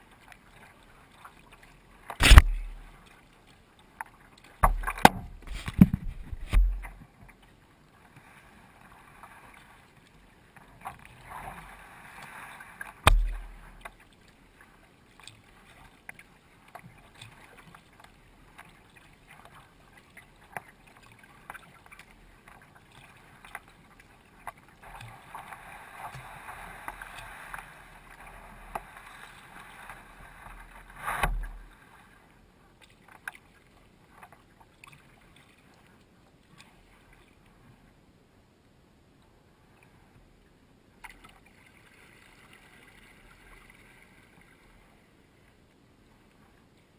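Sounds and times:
water swishing and splashing: 0:00.0 - 0:38.0, 0:39.6 - 0:46.9
sharp low thumps: 0:02.2 - 0:02.9, 0:04.6 - 0:06.9, 0:13.1 - 0:13.6.

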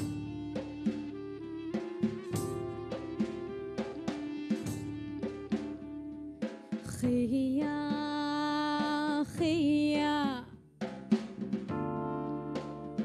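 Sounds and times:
bass guitar: 0:00.0 - 0:06.7, 0:11.0 - 0:13.0
drum hits: 0:00.0 - 0:09.6, 0:10.8 - 0:13.0.

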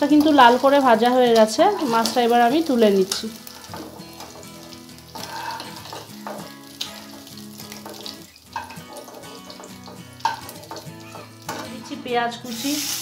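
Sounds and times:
fish sizzling in oil: 0:00.0 - 0:13.0
spatula scraping and tapping pan: 0:03.0 - 0:12.0.

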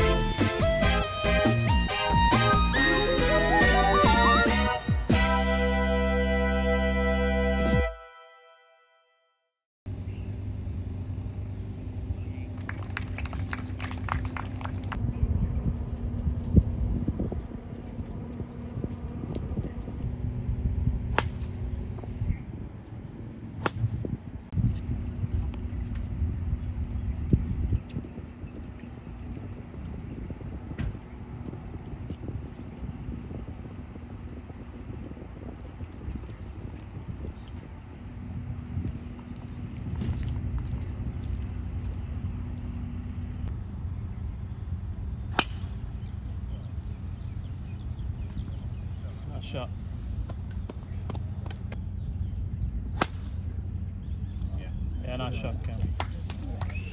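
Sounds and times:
low outdoor rumble: 0:09.9 - 0:56.9
wind: 0:09.9 - 0:56.9
golf club striking ball: 0:21.1 - 0:21.7, 0:45.3 - 0:45.8, 0:53.0 - 0:53.4.

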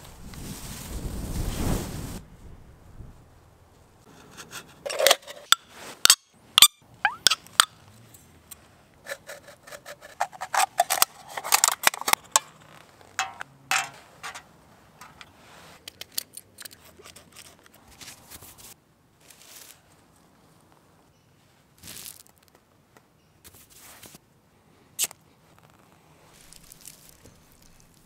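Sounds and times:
knife cutting aluminium can: 0:04.2 - 0:06.2, 0:09.1 - 0:14.4.

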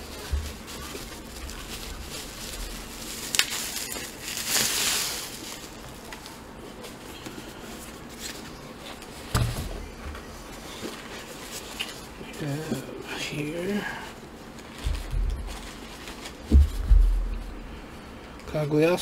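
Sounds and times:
bubble wrap rustling: 0:00.0 - 0:18.0
dull thump: 0:16.5 - 0:17.5.

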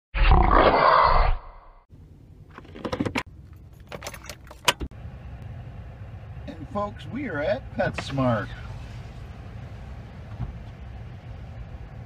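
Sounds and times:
car keys jangling: 0:02.5 - 0:04.9
key turning in ignition: 0:02.5 - 0:04.9.

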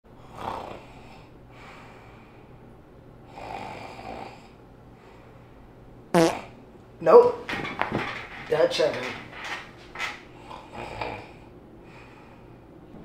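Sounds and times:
person snoring: 0:00.2 - 0:01.3, 0:03.3 - 0:04.6, 0:10.5 - 0:11.5.

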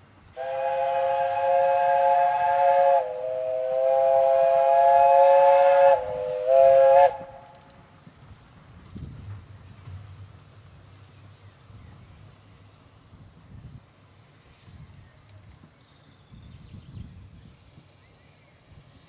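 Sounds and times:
steam locomotive whistle: 0:00.3 - 0:07.4.

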